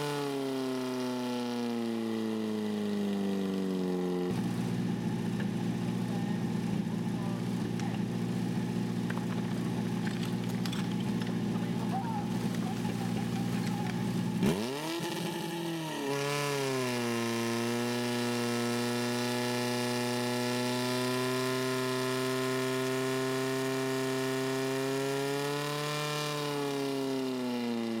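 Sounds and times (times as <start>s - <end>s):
water pump engine running: 2.4s - 15.7s.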